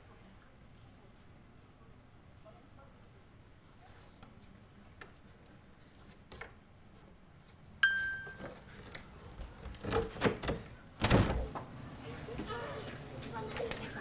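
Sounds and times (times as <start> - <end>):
short bright ding: 7.8 - 8.5.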